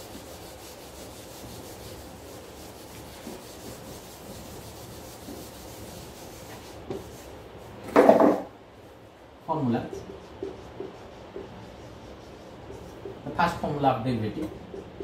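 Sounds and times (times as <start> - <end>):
duster scrubbing whiteboard: 0.0 - 8.4, 9.5 - 15.0.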